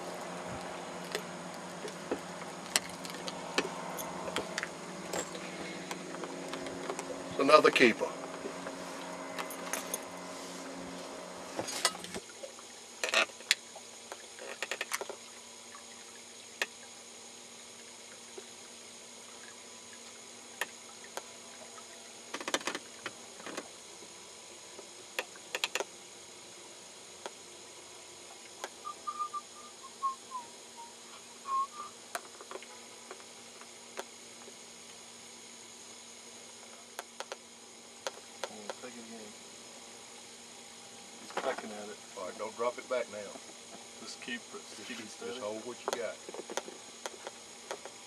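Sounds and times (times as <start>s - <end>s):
low motor hum: 0.0s - 13.0s
fishing gear clicks and knocks: 1.0s - 7.1s
whistled falling notes: 28.8s - 32.0s.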